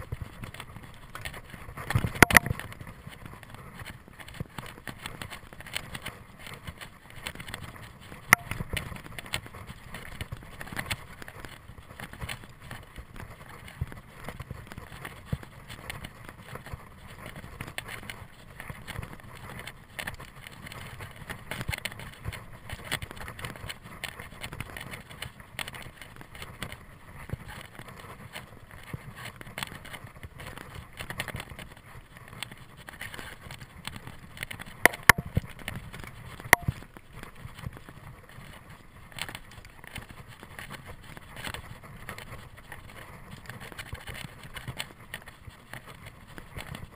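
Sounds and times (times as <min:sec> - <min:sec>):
bike rattling and clicking: 0:00.0 - 0:46.9.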